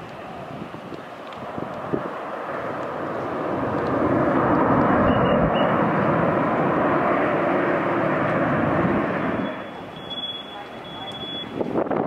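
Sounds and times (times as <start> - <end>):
jet engine roar: 0.0 - 12.0.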